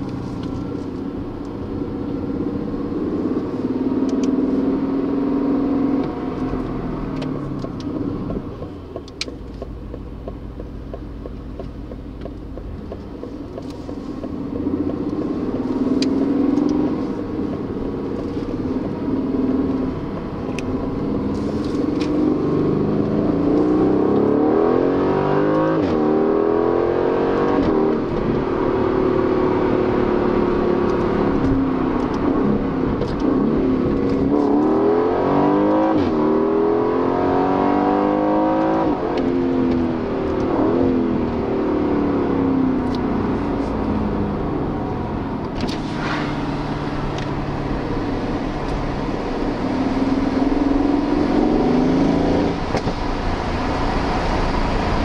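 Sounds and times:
car engine accelerating: 0.0 - 55.0
exhaust cracks: 5.9 - 24.4, 42.7 - 55.0.

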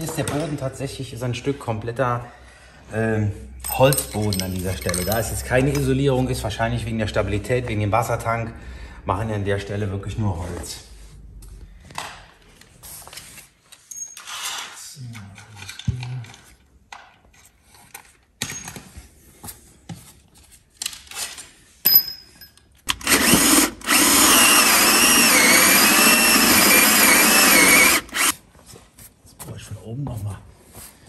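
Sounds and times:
cordless drill boring into wood: 22.9 - 28.4.

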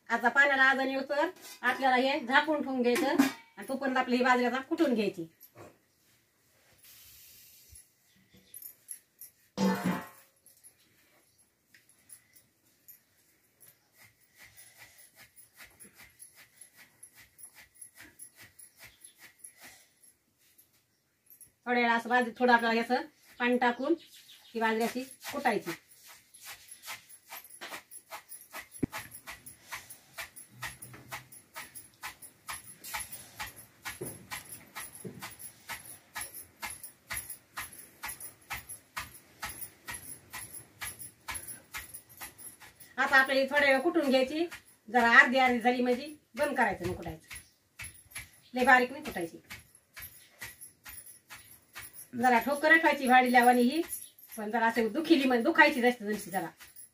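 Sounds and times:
wooden pestle pounding in mortar: 30.1 - 54.0.

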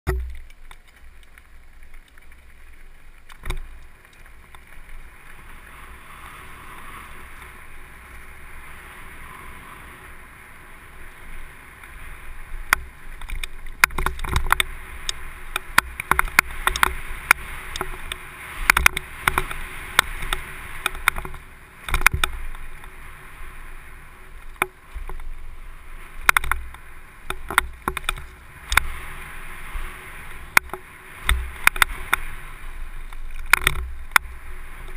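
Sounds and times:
bike tyres rolling on gravel: 0.1 - 34.9
wind noise: 0.1 - 34.9
bike clacking and rattling: 12.7 - 22.9, 26.2 - 29.2, 33.1 - 34.9.

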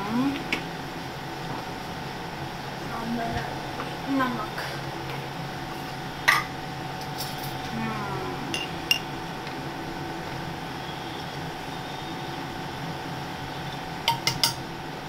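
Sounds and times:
steady low hum: 0.0 - 15.0
metal spoon clinking on pots: 14.1 - 14.6.

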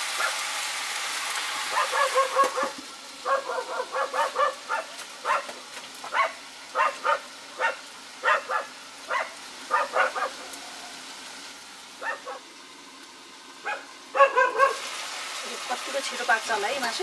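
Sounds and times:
frying sizzle: 0.0 - 17.0
dog barking: 0.2 - 0.4, 1.7 - 10.6, 12.0 - 12.4, 13.6 - 14.8.

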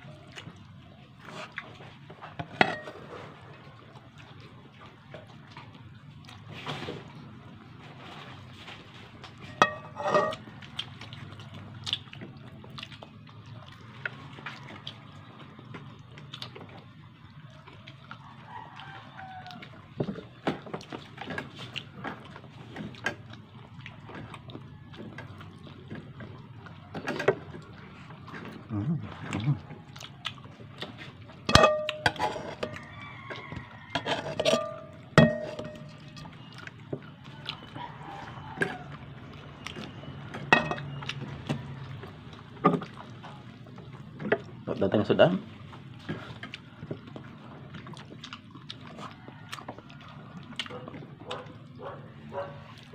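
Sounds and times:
metal utensil clinking on dishes: 2.4 - 3.0, 9.4 - 10.4, 31.5 - 32.8, 34.0 - 36.2, 40.5 - 41.0
wet eating mouth sounds: 9.0 - 44.8, 45.5 - 52.9.

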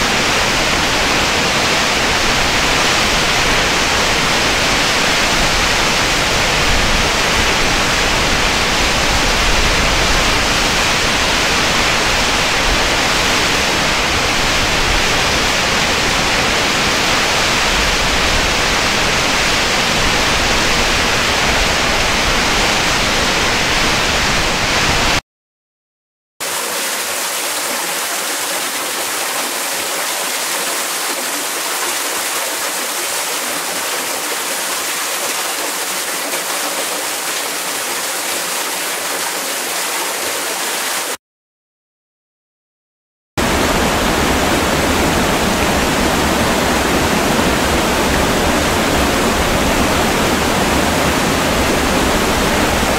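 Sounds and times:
deep falling water rush: 26.4 - 41.2, 43.4 - 52.9
thin bright falling water rush: 26.4 - 41.2.

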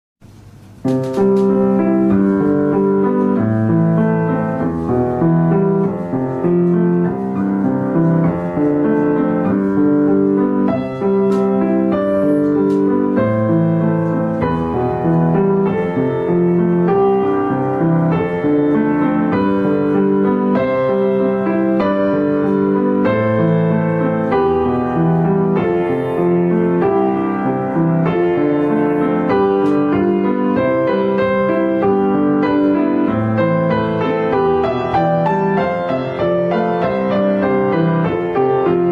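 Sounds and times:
piano background music: 0.2 - 38.9.

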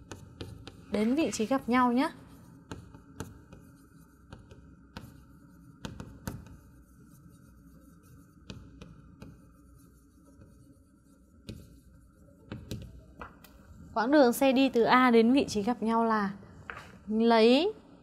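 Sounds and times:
chalk writing on chalkboard: 0.0 - 13.8.

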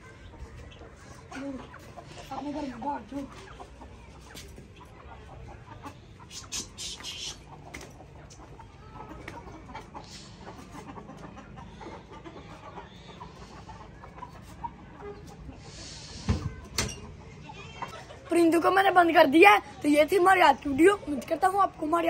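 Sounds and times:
hens and roosters clucking: 0.0 - 22.0.

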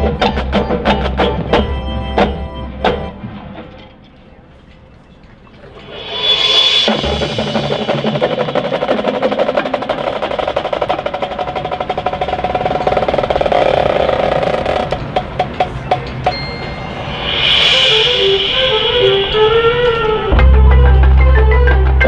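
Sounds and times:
marching band playing: 0.0 - 3.8, 5.7 - 13.2, 14.7 - 22.0
drumline beating fast strokes: 5.6 - 21.0
drum hits: 5.9 - 12.6.

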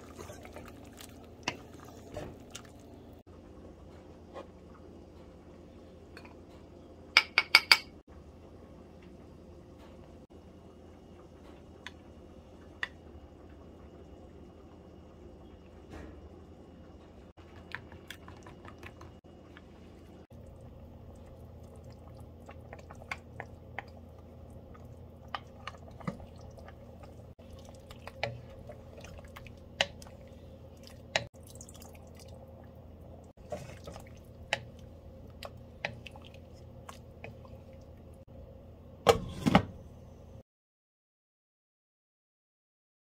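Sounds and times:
spoon stirring thick liquid: 0.0 - 3.0, 17.4 - 32.4, 33.4 - 38.2.

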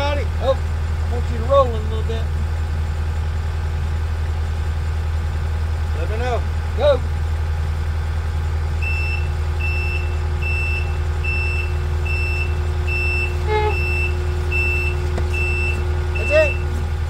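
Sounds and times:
diesel engine running: 0.0 - 17.0
reverse alarm beeping: 8.8 - 16.7.

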